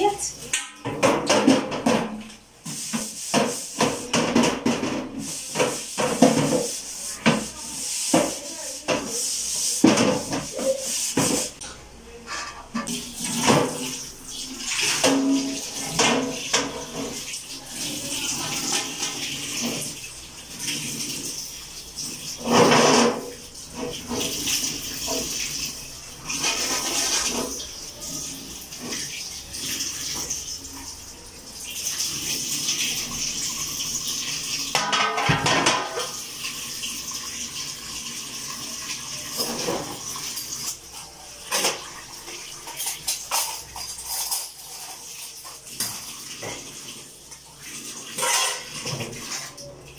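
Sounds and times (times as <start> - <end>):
tap water splashing into sink: 0.4 - 9.2, 9.8 - 11.8, 12.8 - 21.4, 31.7 - 38.0, 38.6 - 49.7
metal tray being scrubbed: 0.8 - 21.4, 22.1 - 30.3, 34.7 - 36.3, 41.3 - 46.7, 48.0 - 49.4
metal tray clanking: 34.7 - 36.2.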